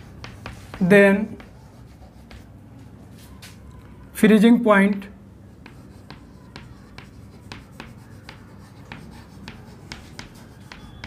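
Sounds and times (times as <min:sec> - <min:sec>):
chalk tapping on chalkboard: 0:00.0 - 0:02.6, 0:04.8 - 0:11.0.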